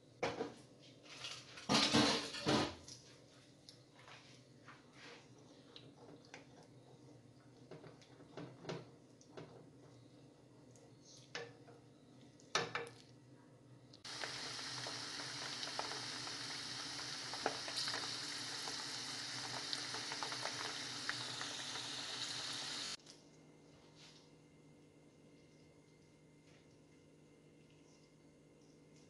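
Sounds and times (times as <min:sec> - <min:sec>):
almonds sizzling in oil: 0:14.0 - 0:23.0.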